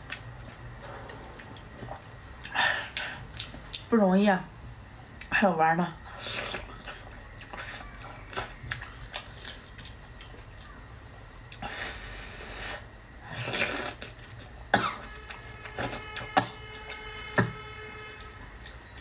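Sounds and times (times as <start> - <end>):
person slurping noodles: 11.6 - 14.2.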